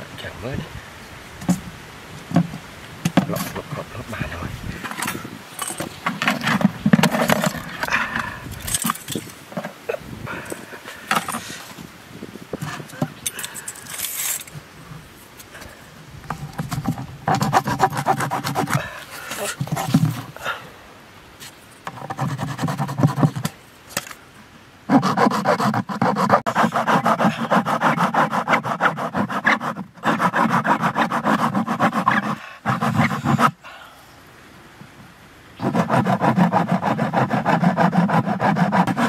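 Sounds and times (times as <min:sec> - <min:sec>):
hacksaw blade sawing plastic: 0:16.6 - 0:20.4, 0:21.9 - 0:24.2, 0:24.9 - 0:33.6, 0:35.6 - 0:39.0.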